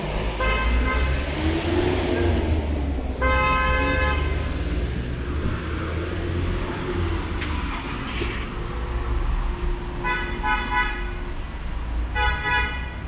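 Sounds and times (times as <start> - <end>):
vehicle engine rumble: 0.0 - 12.2
vehicle horn: 0.4 - 1.4, 3.2 - 4.5, 10.0 - 11.3, 12.1 - 13.0.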